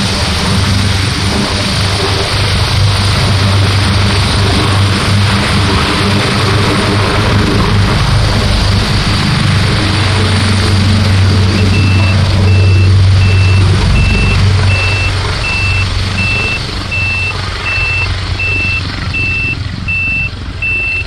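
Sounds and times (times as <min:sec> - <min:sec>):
helicopter rotor and turbine: 0:00.0 - 0:21.0
high electronic beeps: 0:11.5 - 0:21.0.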